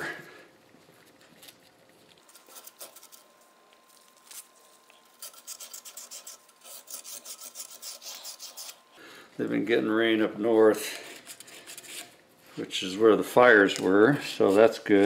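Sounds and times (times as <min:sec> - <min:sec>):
emery paper rubbing metal: 0:04.2 - 0:08.8, 0:13.6 - 0:15.0.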